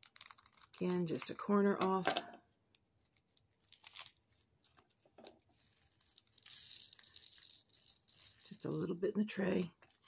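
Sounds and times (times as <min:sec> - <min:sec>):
small plastic bag crinkling: 0:00.0 - 0:01.6, 0:02.7 - 0:09.0.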